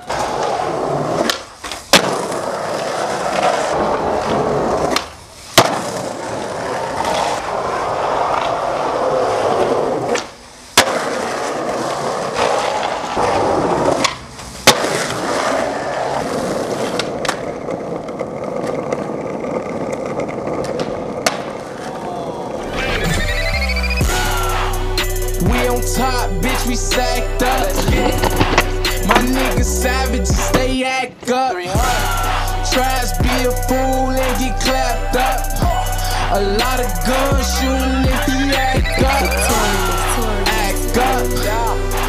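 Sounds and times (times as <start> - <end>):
skateboard landing clack: 0.0 - 7.4, 10.1 - 22.0
skateboard wheels rolling on concrete: 0.0 - 42.0.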